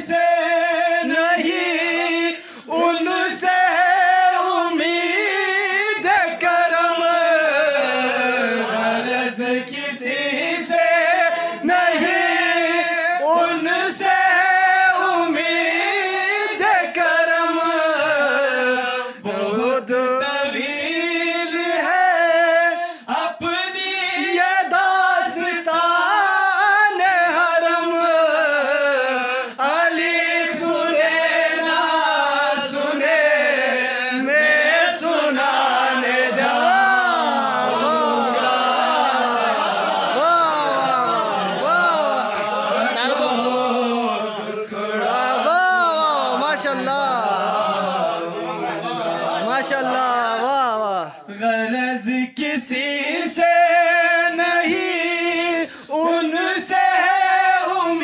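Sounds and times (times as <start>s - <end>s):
man singing devotional song: 0.0s - 39.5s, 40.1s - 58.0s
singer breathing: 2.3s - 2.7s, 11.4s - 11.7s, 22.8s - 23.1s, 55.6s - 56.0s.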